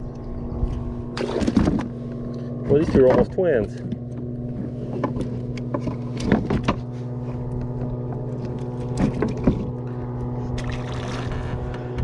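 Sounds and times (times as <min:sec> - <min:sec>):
small motor humming: 0:03.8 - 0:12.0.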